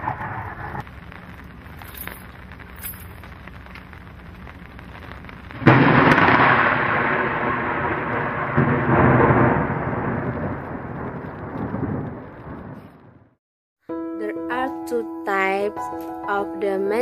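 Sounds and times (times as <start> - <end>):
thunder crack and rumble: 0.0 - 13.4.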